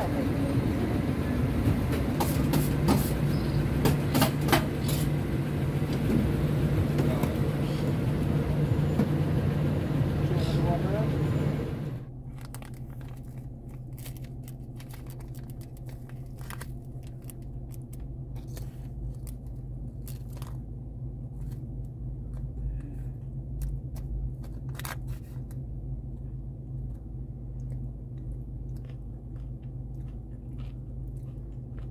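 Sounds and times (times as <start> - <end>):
steady low hum: 0.0 - 31.9
plastic spoon crunching chips: 12.2 - 22.5.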